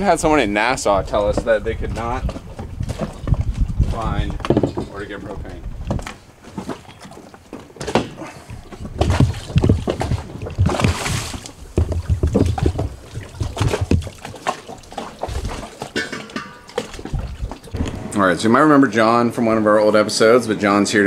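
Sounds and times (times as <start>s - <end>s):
tanks knocking and thumping: 1.1s - 6.8s, 15.3s - 18.7s
water sloshing and splashing: 5.9s - 18.1s.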